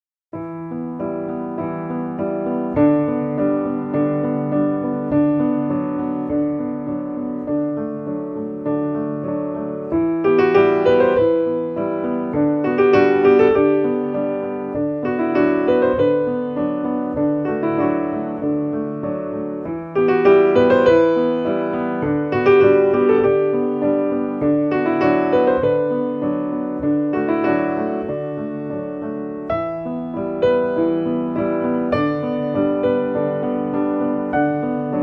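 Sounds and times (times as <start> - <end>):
slow piano music: 0.4 - 35.0.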